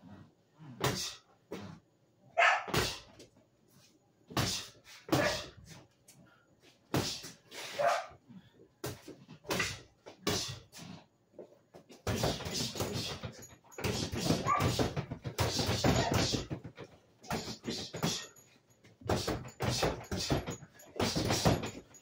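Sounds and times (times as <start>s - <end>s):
sharp breaths and grunts: 0.0s - 22.0s
boxing glove punches on bag: 13.8s - 16.5s.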